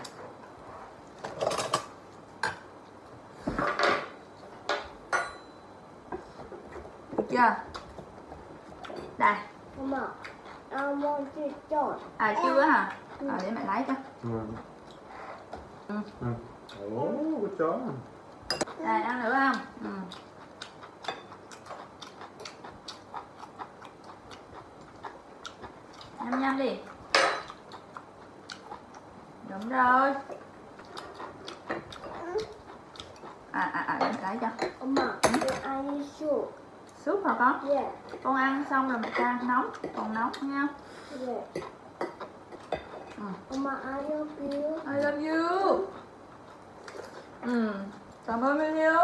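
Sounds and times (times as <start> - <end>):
chopsticks and spoons clinking on bowls: 4.7 - 5.6, 18.5 - 18.8.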